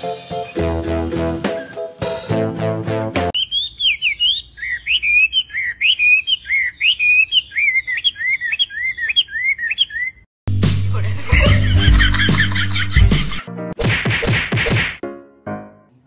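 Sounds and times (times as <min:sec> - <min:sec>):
bird singing whistled notes: 0:03.4 - 0:10.2.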